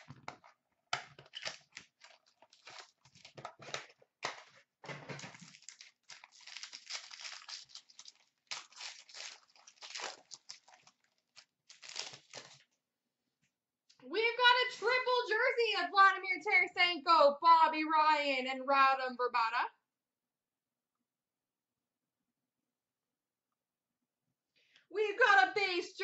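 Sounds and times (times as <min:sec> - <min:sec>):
cardboard and plastic crinkling: 0:00.0 - 0:12.6.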